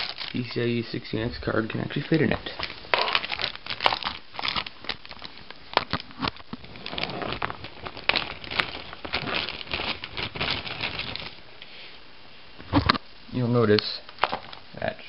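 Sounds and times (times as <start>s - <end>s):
plastic bag crinkling: 0.0s - 11.4s.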